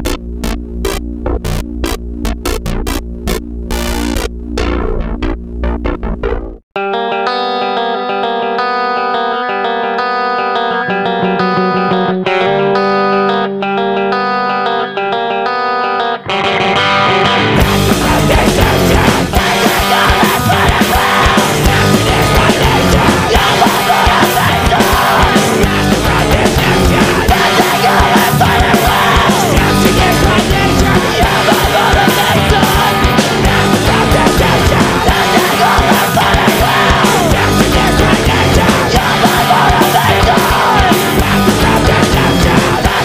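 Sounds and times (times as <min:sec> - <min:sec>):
hardcore punk band playing: 0:00.0 - 0:43.0
screamed vocals: 0:17.8 - 0:43.0.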